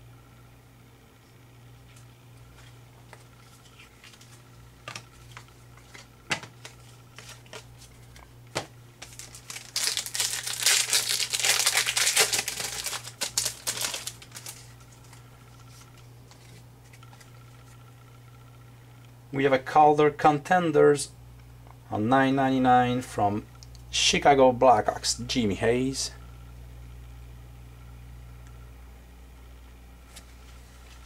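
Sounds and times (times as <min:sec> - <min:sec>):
foil pack crackling: 0:09.0 - 0:16.6.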